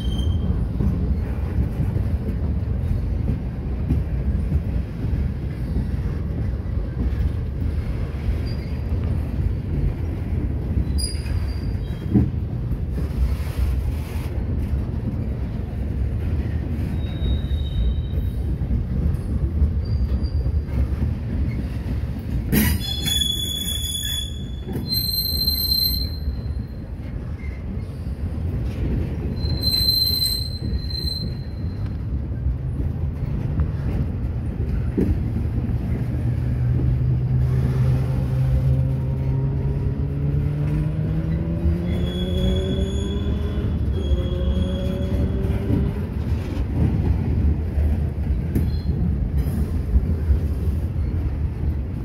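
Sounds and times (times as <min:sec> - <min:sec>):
high-pitched wheel squeals: 0:00.0 - 0:00.6, 0:16.9 - 0:18.4, 0:22.6 - 0:26.8, 0:29.3 - 0:32.0, 0:41.2 - 0:45.7
train wheels rumbling on rail: 0:00.0 - 0:52.0.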